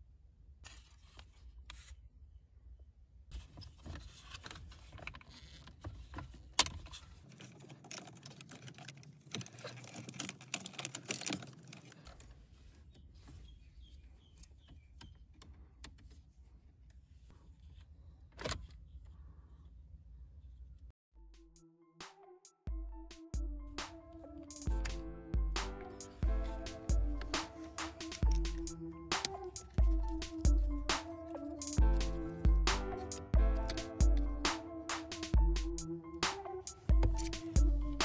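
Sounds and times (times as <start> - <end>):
plastic parts clicking and rattling: 3.4 - 12.9.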